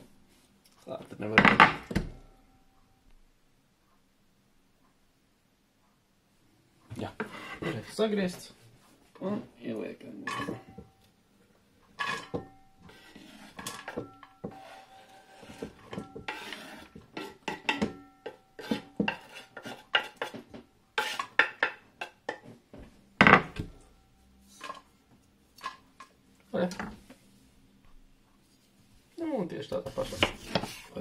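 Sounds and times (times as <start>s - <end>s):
knife scraping cutting board: 7.2s - 8.0s, 12.0s - 17.9s, 18.6s - 21.7s, 29.8s - 31.0s
metal pot ringing: 10.2s - 11.1s, 12.0s - 12.9s, 13.7s - 14.9s, 17.5s - 19.0s.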